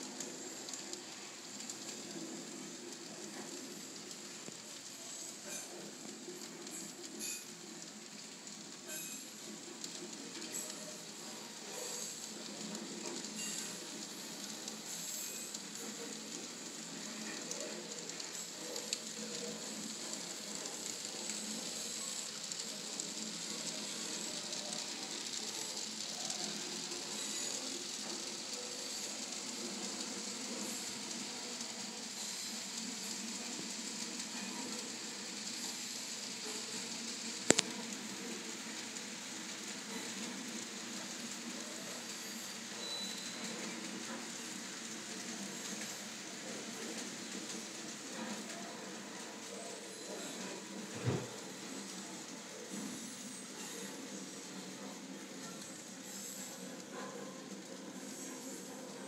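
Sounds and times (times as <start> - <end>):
model train wheels rattling on rails: 0.0 - 59.0
small clicks: 36.6 - 38.2.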